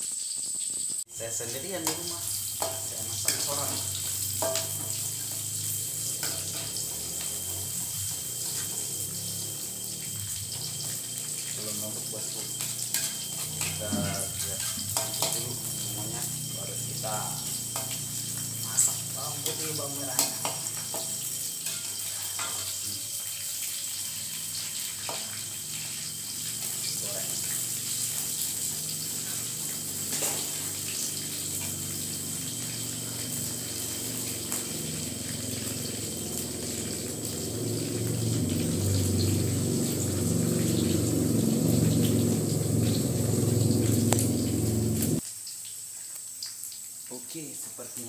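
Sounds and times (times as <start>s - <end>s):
bamboo shoots sizzling in a wok: 0.0s - 48.0s
metal spatula scraping a wok: 1.8s - 8.8s, 12.5s - 16.3s, 20.1s - 22.9s, 27.4s - 31.7s.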